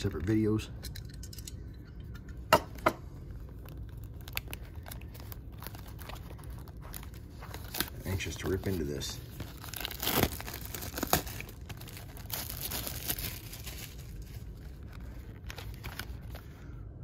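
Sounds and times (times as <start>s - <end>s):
packaging crinkling: 3.3s - 16.7s
packaging ripping: 3.5s - 16.6s.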